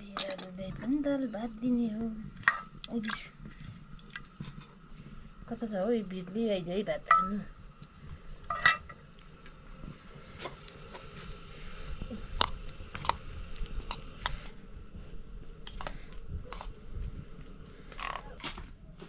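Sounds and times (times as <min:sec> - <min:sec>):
person eating: 0:11.2 - 0:14.6.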